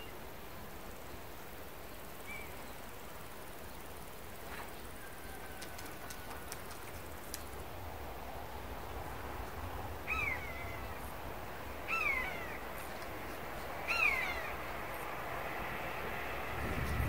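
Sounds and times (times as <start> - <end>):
buzzard mewing call: 11.8 - 12.8, 13.8 - 14.6.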